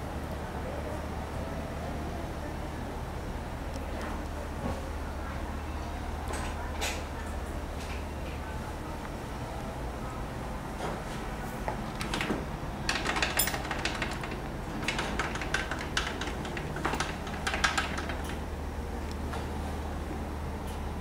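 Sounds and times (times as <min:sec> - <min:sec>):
sharp clicks and light knocks: 0:11.7 - 0:18.4.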